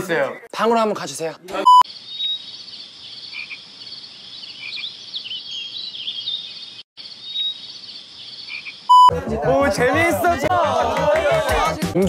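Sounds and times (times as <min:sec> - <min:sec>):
insects chirring: 0:01.8 - 0:09.1.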